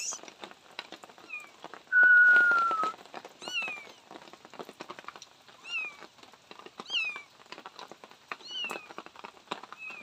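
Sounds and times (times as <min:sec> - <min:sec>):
whistle-like tone: 0:01.9 - 0:02.9
kitten meowing: 0:08.4 - 0:08.9.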